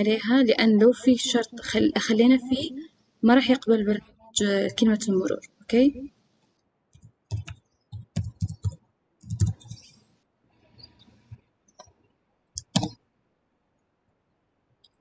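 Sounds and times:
computer keyboard keystrokes: 0:06.9 - 0:09.9, 0:12.6 - 0:13.0.

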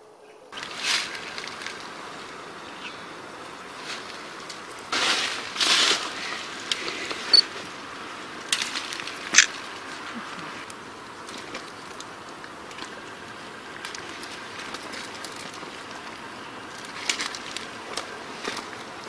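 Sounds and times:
dry branches rustling and crackling: 0:00.5 - 0:19.0
twigs snapping: 0:00.6 - 0:02.1, 0:08.4 - 0:19.0.

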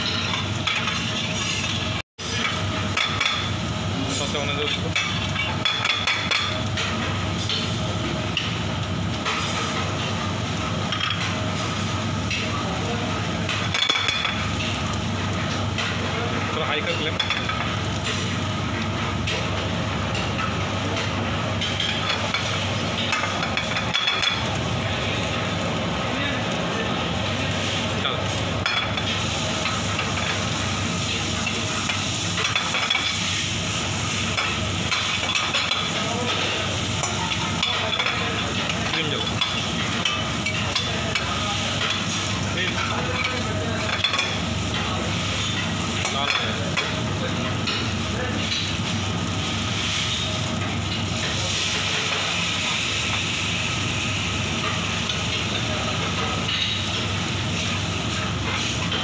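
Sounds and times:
onion and garlic sizzling in butter: 0:00.0 - 0:59.0.

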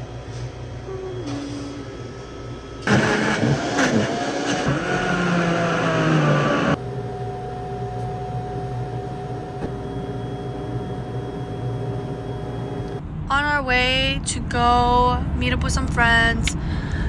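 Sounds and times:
steady hum: 0:00.0 - 0:17.0
blender motor running: 0:02.8 - 0:06.8.

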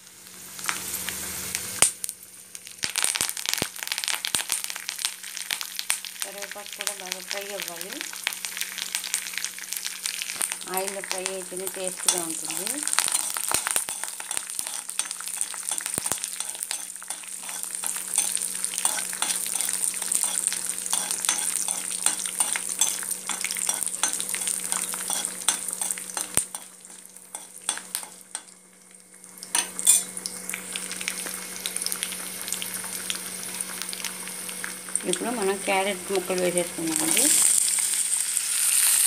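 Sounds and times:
frying in hot oil sizzling: 0:00.0 - 0:39.0
low steady hum: 0:10.2 - 0:38.1
stirring in pan: 0:12.0 - 0:28.5.

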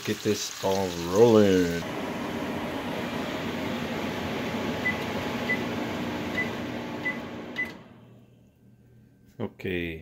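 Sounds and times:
fan whooshing: 0:01.8 - 0:08.0.

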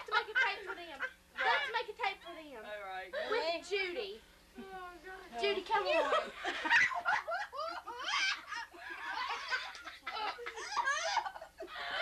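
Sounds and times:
high-pitched laughter: 0:06.1 - 0:12.0.

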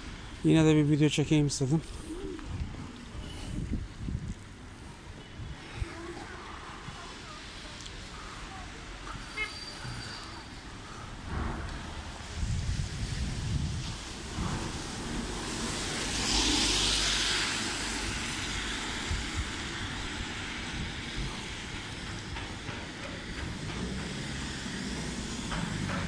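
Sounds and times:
tyres hissing on wet asphalt: 0:00.0 - 0:26.0.

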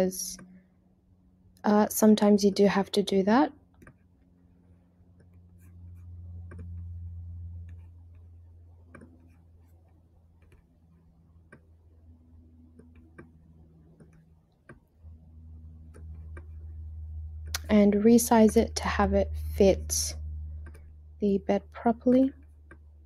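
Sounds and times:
low steady hum: 0:00.0 - 0:23.0
faint mouse clicking: 0:08.9 - 0:09.4.

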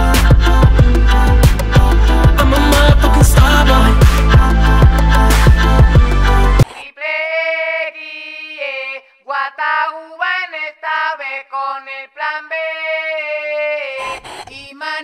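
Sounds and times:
pop music with heavy beat: 0:00.0 - 0:06.7
person singing unaccompanied: 0:00.0 - 0:15.0.

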